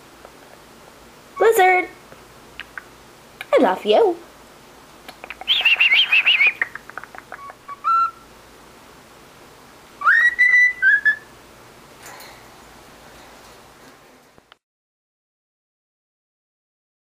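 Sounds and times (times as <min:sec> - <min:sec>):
cockatiel chattering: 0:02.6 - 0:02.9, 0:05.1 - 0:08.2
cockatiel whistling: 0:05.4 - 0:06.8, 0:07.4 - 0:08.2, 0:10.0 - 0:11.3.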